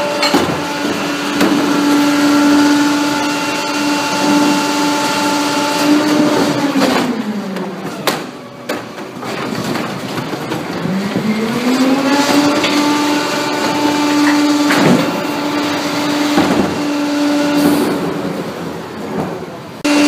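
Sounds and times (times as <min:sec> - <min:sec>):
cart clanking against hopper: 0:00.0 - 0:02.7, 0:06.0 - 0:18.4
truck engine and hydraulics whining: 0:00.0 - 0:20.0.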